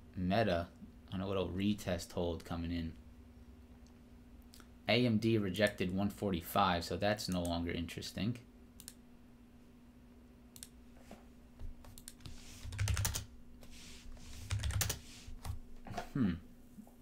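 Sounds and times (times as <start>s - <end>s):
mechanical keyboard typing: 11.9s - 13.3s, 14.3s - 15.6s.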